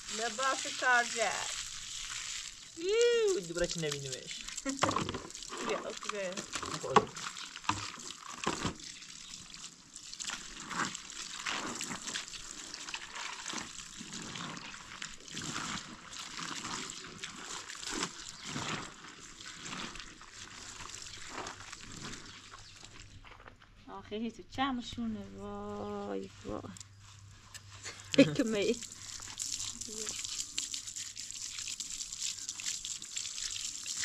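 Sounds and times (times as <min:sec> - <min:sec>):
water running from hose: 0:00.0 - 0:23.0, 0:27.9 - 0:34.0
water splashing and sloshing: 0:00.0 - 0:23.8, 0:28.4 - 0:34.0
water tipped onto ground: 0:00.1 - 0:09.0.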